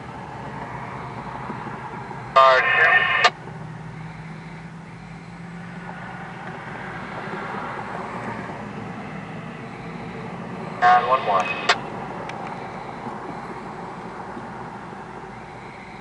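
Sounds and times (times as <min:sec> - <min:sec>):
diesel locomotive engine humming: 0:00.0 - 0:16.0
pickup truck driving past: 0:03.4 - 0:10.8.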